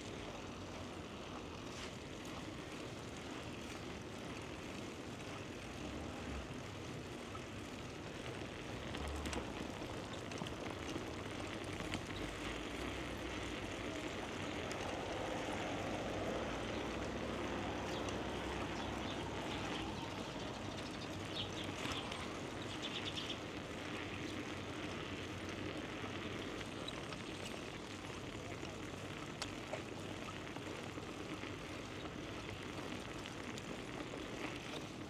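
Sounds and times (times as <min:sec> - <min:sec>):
faint bicycle ticks: 0:00.0 - 0:35.0
low wind buffets: 0:13.1 - 0:24.7.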